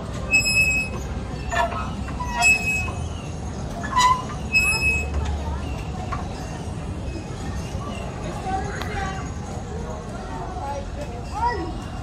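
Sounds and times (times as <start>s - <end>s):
metal pivots squeaking: 0.2s - 8.2s.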